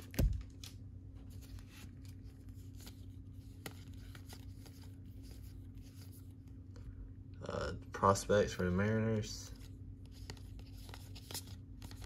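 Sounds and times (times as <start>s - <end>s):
low steady hum: 0.0s - 12.0s
cards sliding and ticking: 0.6s - 6.6s, 9.5s - 12.0s.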